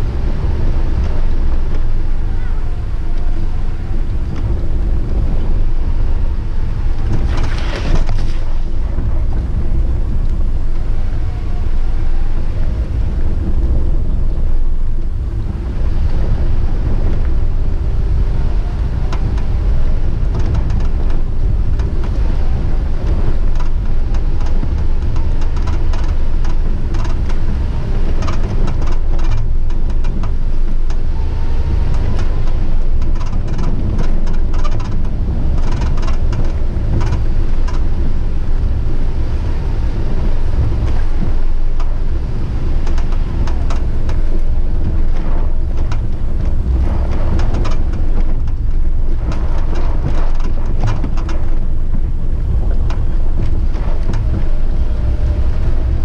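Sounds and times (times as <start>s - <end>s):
vehicle driving rumble: 0.0s - 56.0s
small knocks and rattles: 20.2s - 22.2s, 23.0s - 27.5s, 28.1s - 31.0s, 31.8s - 38.1s, 42.8s - 54.7s.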